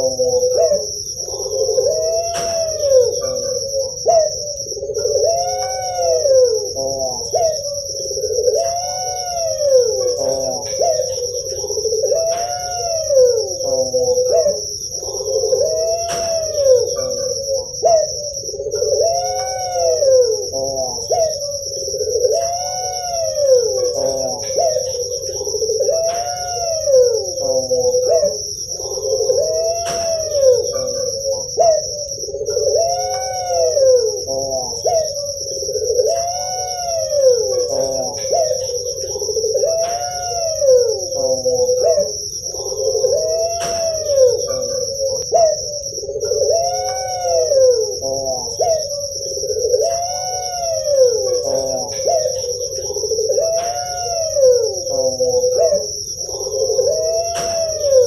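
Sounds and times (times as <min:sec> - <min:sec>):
dove cooing: 0:00.0 - 0:58.0.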